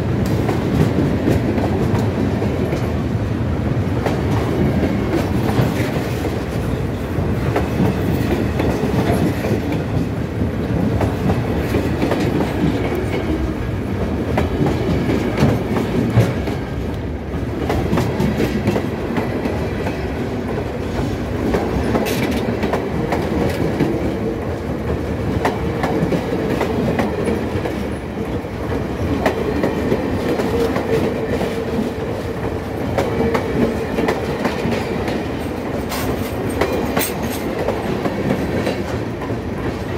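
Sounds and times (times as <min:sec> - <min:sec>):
train wheels clattering over rail joints: 0:04.0 - 0:13.5, 0:28.7 - 0:39.9.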